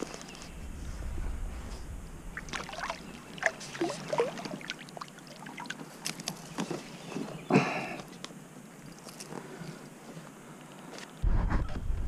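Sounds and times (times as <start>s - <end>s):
water splashes and gurgles: 2.3s - 6.5s.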